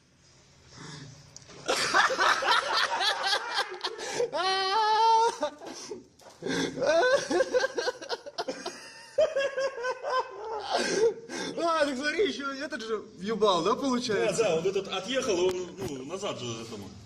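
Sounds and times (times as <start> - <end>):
laughter: 1.6 - 6.0, 6.8 - 11.2.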